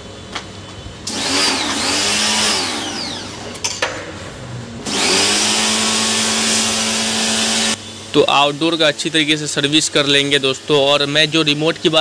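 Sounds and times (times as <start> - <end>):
pressure washer motor whine: 1.0 - 3.6, 4.8 - 10.9.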